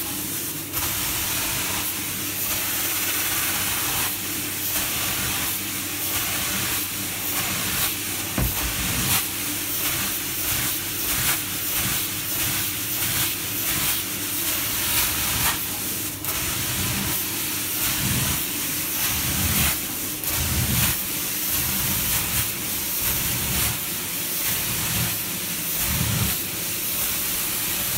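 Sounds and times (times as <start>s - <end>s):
carpet cleaner suction hiss: 0.8s - 10.2s.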